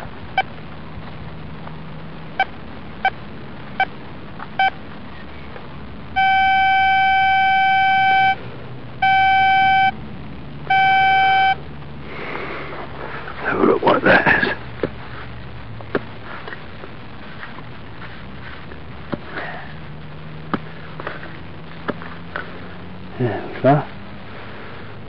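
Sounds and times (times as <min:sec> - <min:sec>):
metal detector steady tone: 0:04.6 - 0:04.8, 0:06.1 - 0:08.4, 0:09.0 - 0:10.0, 0:10.6 - 0:11.6
metal detector beeps: 0:06.2 - 0:08.4, 0:09.0 - 0:10.0, 0:10.7 - 0:11.6.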